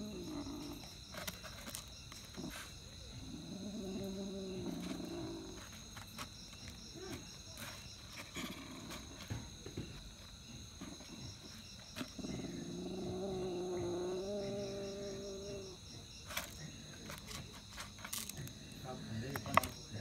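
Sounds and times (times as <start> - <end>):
cat growling: 0.0 - 1.3, 2.3 - 5.8, 8.2 - 9.5, 10.8 - 15.9
crickets chirping: 0.0 - 20.0.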